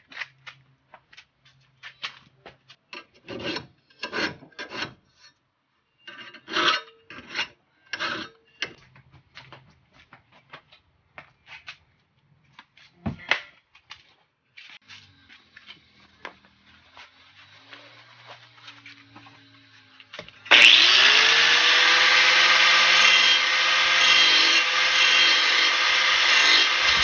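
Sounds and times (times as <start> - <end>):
file rasping on metal blade: 3.1 - 5.3, 6.1 - 8.4, 20.5 - 27.0.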